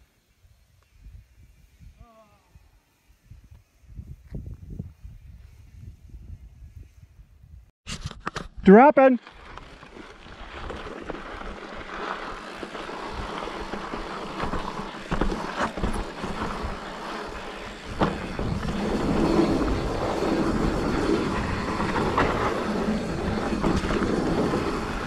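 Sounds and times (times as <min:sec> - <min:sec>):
bike tyres crunching on dirt: 0:08.6 - 0:25.0
bike rattling over bumps: 0:08.8 - 0:25.0.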